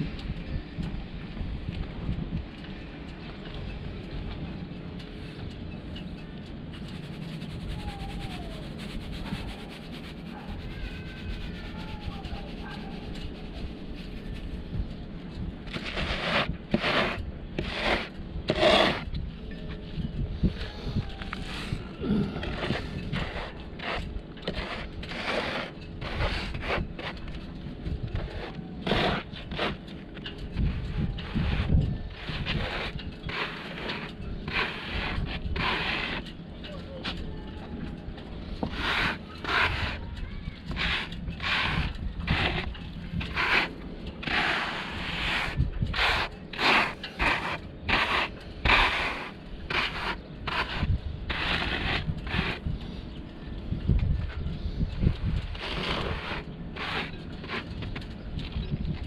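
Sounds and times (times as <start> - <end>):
sand scraping and swishing: 6.8 - 14.8, 15.6 - 19.1, 20.4 - 29.8, 30.6 - 36.3, 38.5 - 40.0, 40.6 - 52.7, 55.2 - 58.0.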